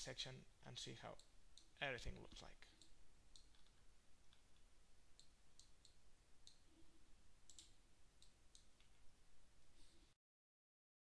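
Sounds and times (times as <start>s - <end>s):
computer mouse clicks: 2.8s - 6.6s, 7.5s - 9.0s.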